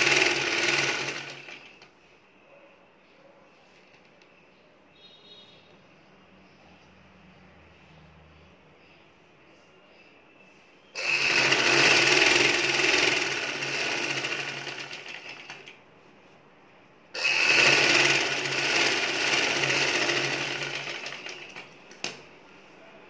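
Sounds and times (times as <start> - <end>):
sewing machine stitching: 0.0 - 1.8, 11.0 - 15.8, 17.2 - 21.8.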